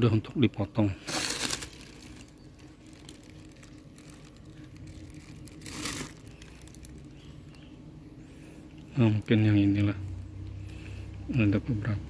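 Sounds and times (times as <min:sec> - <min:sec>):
foil sheet crinkling: 0:01.0 - 0:07.2.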